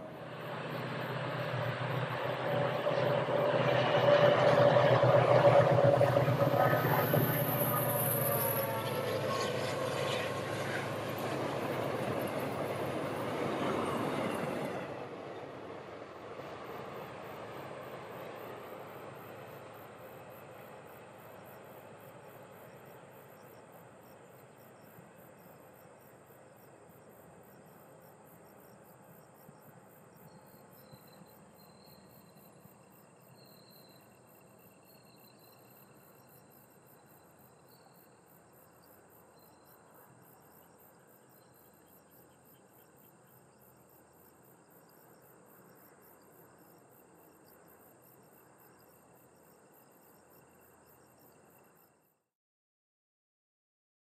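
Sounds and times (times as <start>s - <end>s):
distant train rumble: 0.0s - 40.3s
insects chirring: 16.6s - 52.0s.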